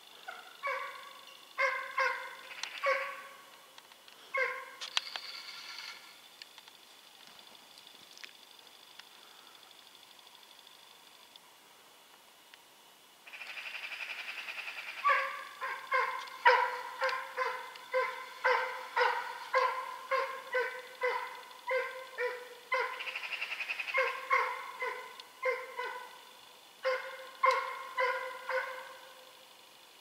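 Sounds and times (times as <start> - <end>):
dog yelping: 0.3 - 3.3, 4.3 - 4.8, 15.0 - 23.1, 23.9 - 26.2, 26.8 - 29.0
dog barking: 0.3 - 3.4, 4.3 - 4.8, 15.0 - 23.1, 23.9 - 26.2, 26.8 - 29.2.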